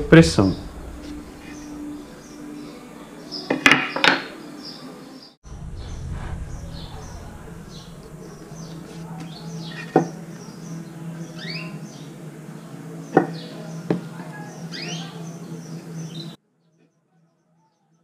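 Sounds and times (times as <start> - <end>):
low hum: 0.0 - 3.3, 5.4 - 11.4
birds chirping: 0.0 - 16.4.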